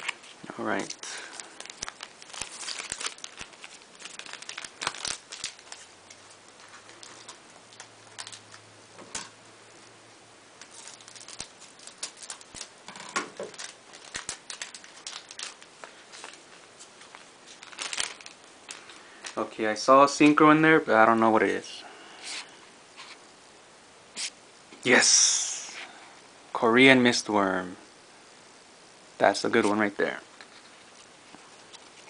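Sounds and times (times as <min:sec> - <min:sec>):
trading cards clicking and rustling: 0:10.6 - 0:16.4.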